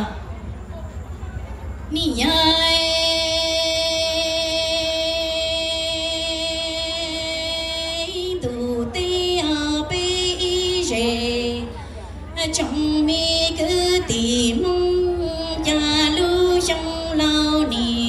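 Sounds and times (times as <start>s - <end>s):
woman singing into microphone: 1.9s - 11.8s, 12.4s - 18.0s.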